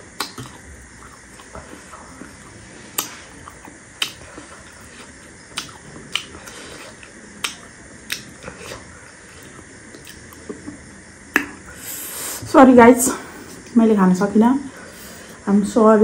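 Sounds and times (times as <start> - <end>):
mouth clicks and lip smacks: 0.2 - 2.3, 3.0 - 4.3, 5.5 - 8.4, 9.9 - 10.5, 11.3 - 11.6.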